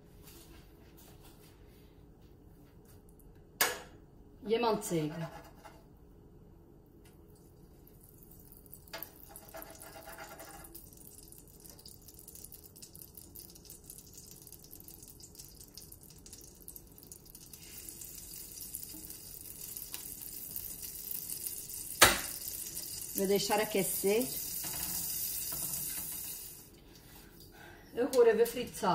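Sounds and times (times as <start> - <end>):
butter sizzling in frying pan: 8.6 - 26.7.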